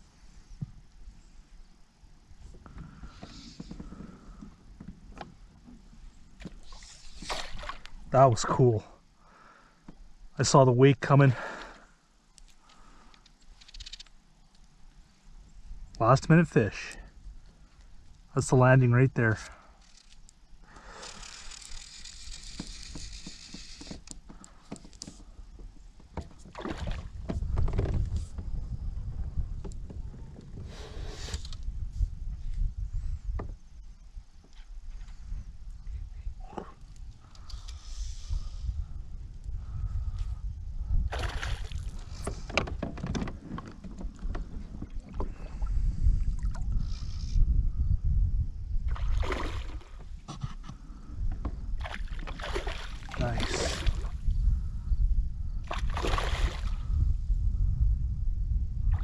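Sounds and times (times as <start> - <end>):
low wind rumble on microphone: 19.8 - 59.0.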